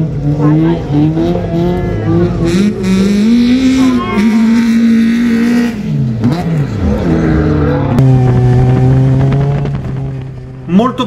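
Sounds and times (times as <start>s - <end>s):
race car engine revving: 0.0s - 11.0s.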